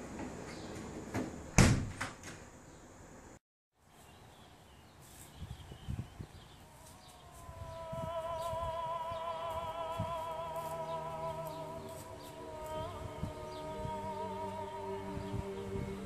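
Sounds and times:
door banging shut: 1.0 - 2.5.

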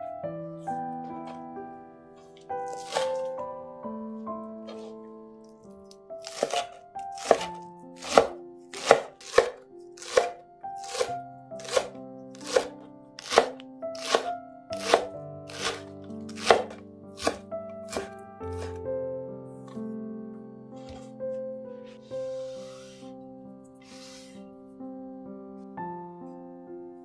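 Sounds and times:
knife chopping on cutting board: 2.7 - 3.3, 6.2 - 18.8.

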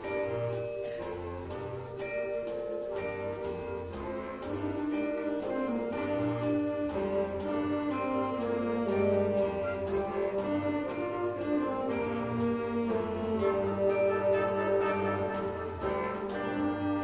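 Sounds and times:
concert band playing: 0.0 - 17.0
marimba: 0.0 - 17.0.

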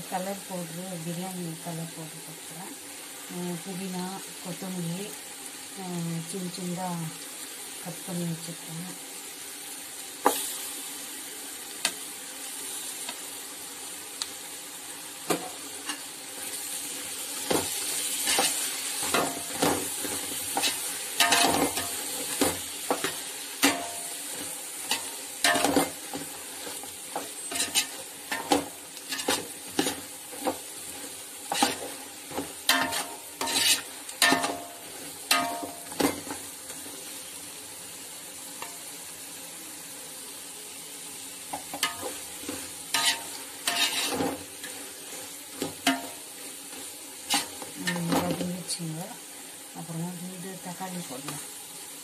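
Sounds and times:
onions sizzling: 0.0 - 52.0
metal spoon scraping a pot: 32.7 - 34.6, 43.0 - 44.3.

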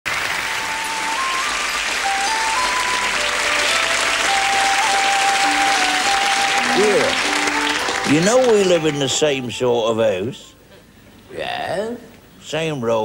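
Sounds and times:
audience applauding: 0.1 - 9.6
simple tune of held notes: 0.4 - 9.9.

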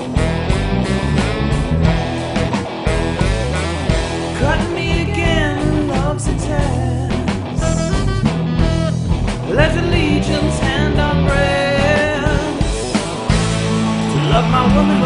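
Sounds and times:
rock band playing: 0.0 - 15.0.

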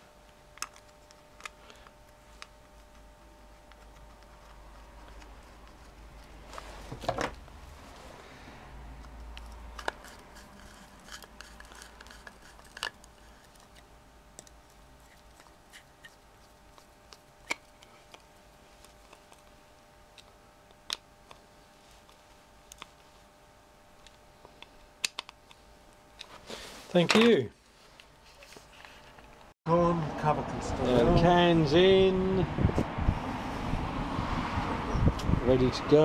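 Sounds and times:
screwdriver clicks and scrapes on metal: 9.3 - 13.8.

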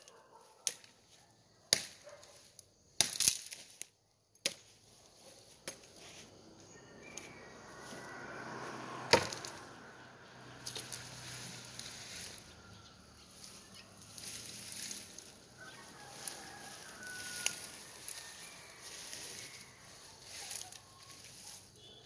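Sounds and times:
rustling of cut brush: 0.1 - 9.7, 10.5 - 22.0
sharp chop into bamboo: 9.1 - 9.4.

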